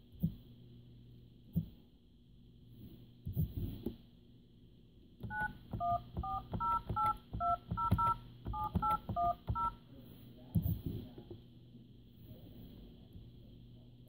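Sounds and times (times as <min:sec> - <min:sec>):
phone keypad touch tones: 0:05.2 - 0:09.8.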